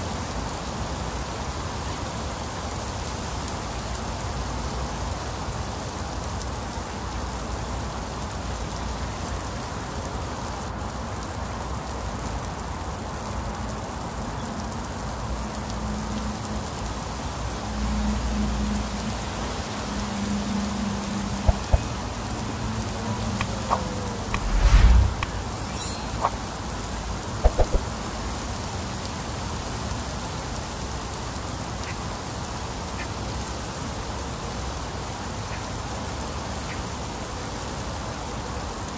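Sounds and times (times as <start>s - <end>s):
heavy rain on concrete and leaves: 0.0s - 38.9s
low rumble: 21.5s - 26.3s.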